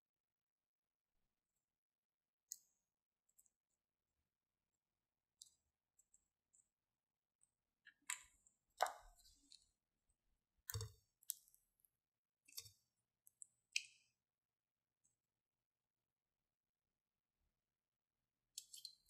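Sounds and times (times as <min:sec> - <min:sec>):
plastic tube clicks and taps: 0:07.9 - 0:09.1, 0:10.7 - 0:11.4.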